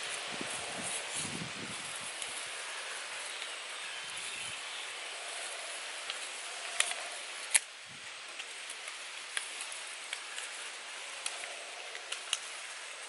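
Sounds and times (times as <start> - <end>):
steady background hiss: 0.0 - 13.0
bamboo sticks clicking: 6.0 - 12.8.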